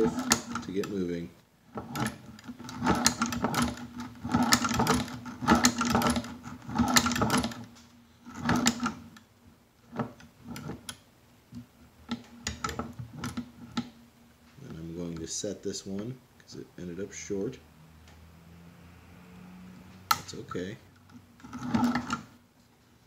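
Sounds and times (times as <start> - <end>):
sewing machine clattering: 1.8 - 7.6.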